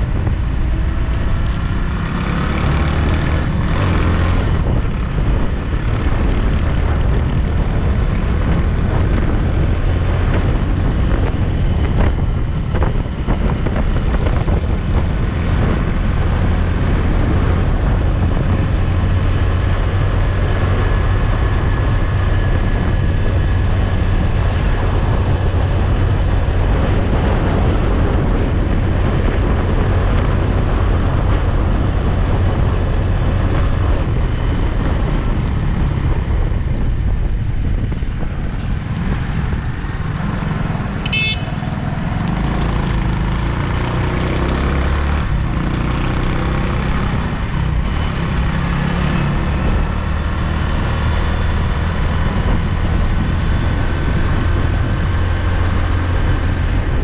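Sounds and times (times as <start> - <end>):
street traffic: 0.0 - 57.0
wind rumble on microphone: 0.0 - 57.0
high horn toot: 41.0 - 41.8.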